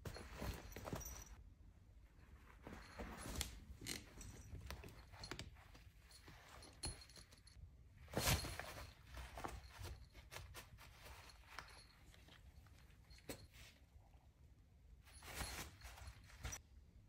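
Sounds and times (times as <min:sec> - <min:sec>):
small bell jingling: 0:00.0 - 0:01.4, 0:02.6 - 0:07.6, 0:08.2 - 0:13.7, 0:15.1 - 0:16.6
soft rustling: 0:00.0 - 0:14.3, 0:15.0 - 0:16.7.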